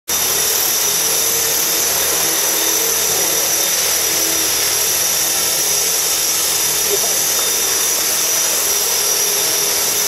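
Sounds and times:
high-pitched motor whine: 0.1s - 10.0s.

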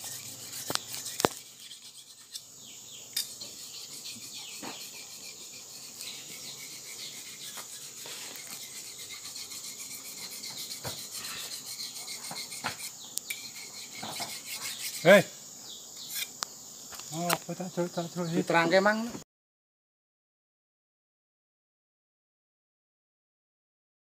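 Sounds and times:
insect chirring: 0.0s - 19.1s.

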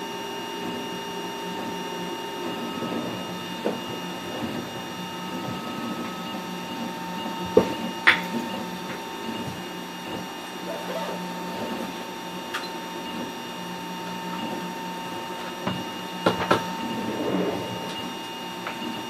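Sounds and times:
cooling fan hum: 0.0s - 19.0s.

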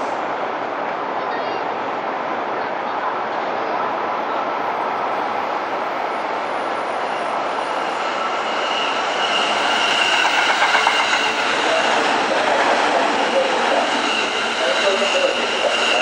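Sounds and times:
train wheels rumbling on rail: 4.7s - 16.0s
high steady ringing tone: 8.8s - 11.5s.

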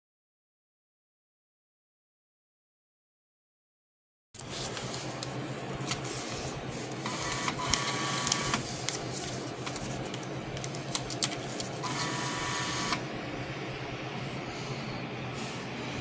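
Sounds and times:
steady low hum: 4.4s - 16.0s
bill validator motor whirring: 5.8s - 10.1s, 10.9s - 13.2s.

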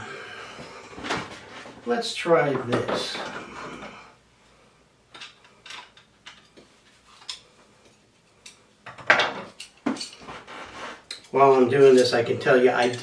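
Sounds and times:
metal parts clicking: 5.1s - 6.6s.

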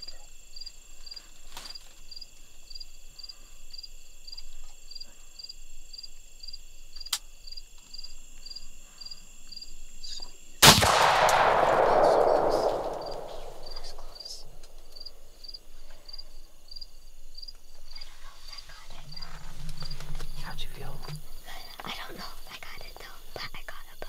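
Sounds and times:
high insect chirp: 0.0s - 24.0s
loud rifle shot: 10.6s - 14.9s.

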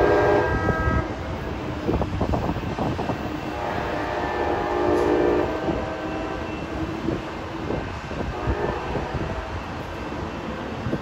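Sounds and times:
train horn: 0.0s - 1.2s, 3.5s - 6.8s, 8.2s - 9.6s
train rumbling on tracks: 0.0s - 11.0s.

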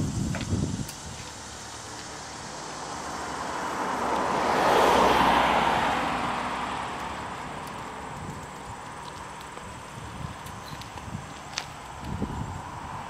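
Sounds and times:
car driving past: 1.7s - 8.2s.

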